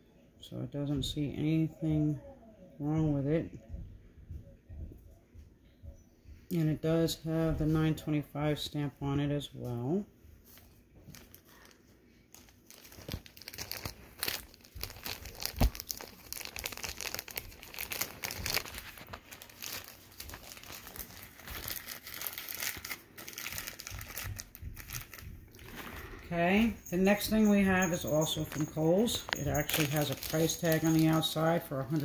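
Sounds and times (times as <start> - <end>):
plastic bag crinkling: 10.4 - 32.0.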